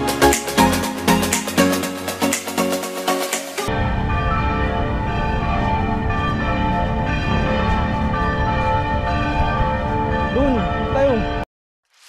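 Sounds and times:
low rumble: 3.7s - 11.0s
church bells ringing: 3.7s - 11.4s.

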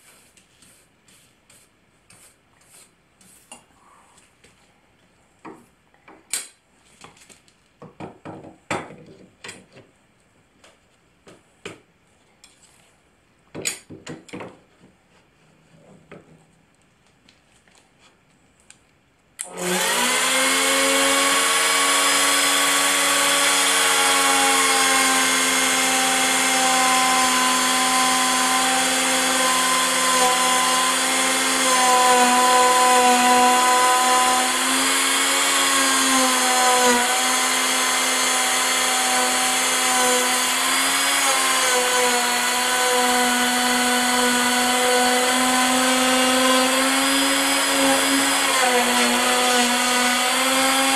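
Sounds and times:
router whining: 19.4s - 50.9s.

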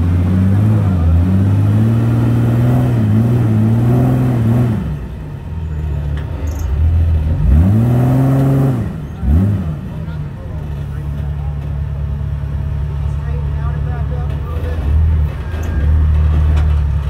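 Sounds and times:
engine revving under load: 0.0s - 5.5s, 6.1s - 11.3s.

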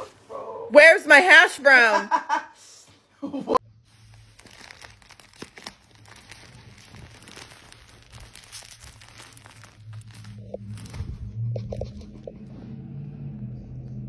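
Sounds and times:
plastic wrapper crinkling: 3.8s - 12.4s.

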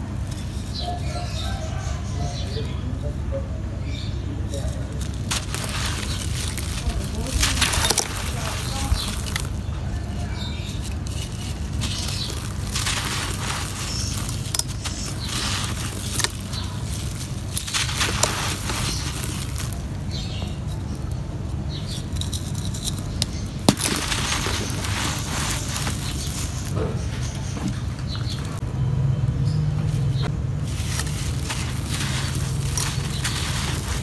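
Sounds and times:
loose sand trickling: 4.4s - 28.7s, 30.0s - 34.0s
sand blocks crunching by hand: 4.5s - 28.6s, 30.6s - 34.0s
chunks snapping: 4.8s - 9.9s, 10.6s - 28.6s.

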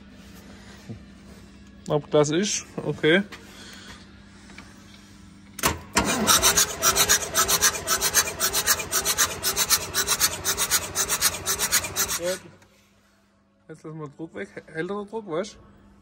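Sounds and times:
diesel engine cranking: 5.7s - 12.5s.

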